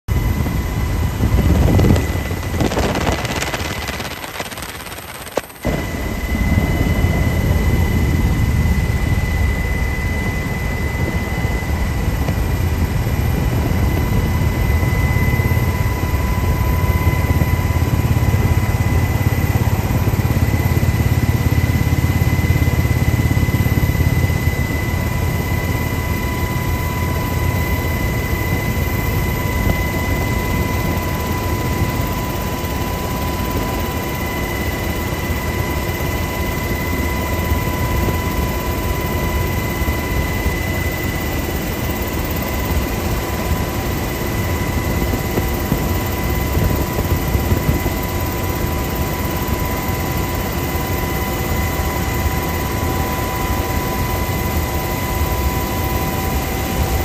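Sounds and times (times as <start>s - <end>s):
helicopter rotor and engine drone: 0.0s - 57.0s
constant high whine: 0.1s - 57.0s
loud rush of noise: 1.3s - 7.8s.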